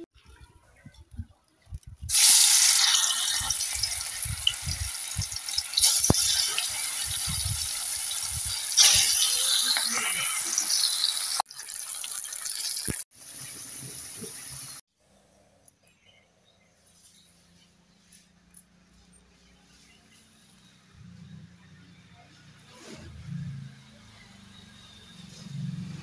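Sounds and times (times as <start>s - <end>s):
potatoes sizzling in oil: 2.1s - 14.8s.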